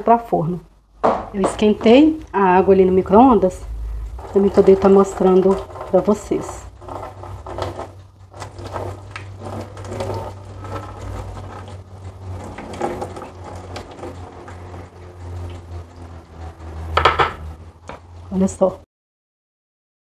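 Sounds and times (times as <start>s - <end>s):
steady low hum: 0.0s - 18.5s
kitchen clatter and knocks: 1.0s - 2.1s, 16.6s - 18.1s.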